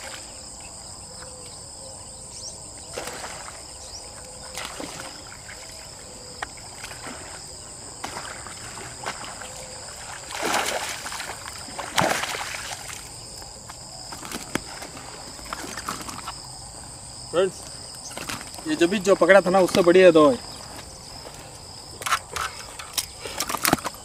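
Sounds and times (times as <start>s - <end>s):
insects buzzing: 0.0s - 24.0s
water splashing: 4.4s - 6.0s, 6.6s - 13.2s.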